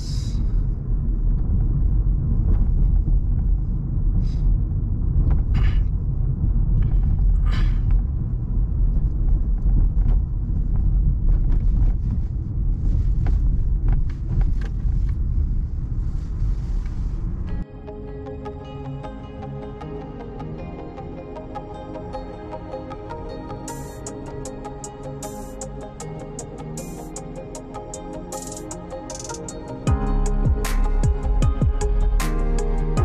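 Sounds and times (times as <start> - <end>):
car driving rumble: 0.0 - 17.6.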